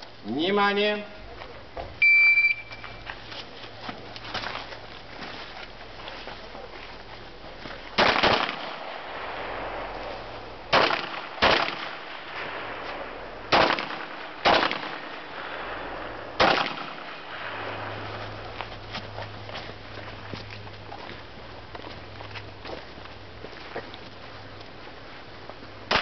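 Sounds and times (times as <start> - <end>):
pistol shots: 8.0 - 18.2.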